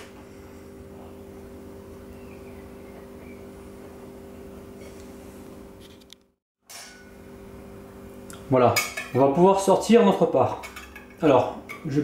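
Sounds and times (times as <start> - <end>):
low room hum: 0.0 - 6.0.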